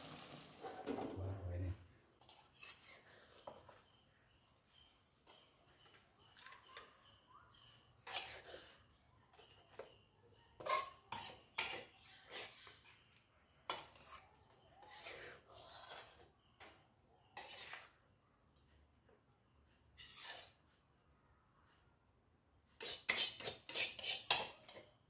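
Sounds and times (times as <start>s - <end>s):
wooden spatula scraping a pan: 2.2s - 4.0s, 4.7s - 18.0s, 20.0s - 20.7s, 22.8s - 25.0s.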